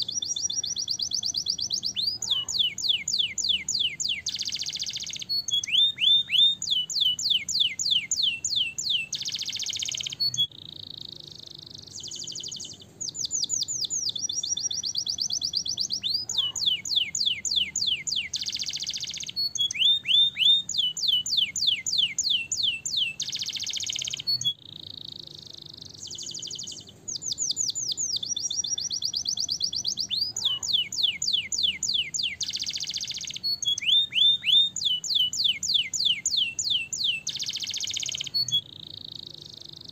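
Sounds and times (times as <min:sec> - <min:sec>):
canary singing: 0:00.0 - 0:39.9.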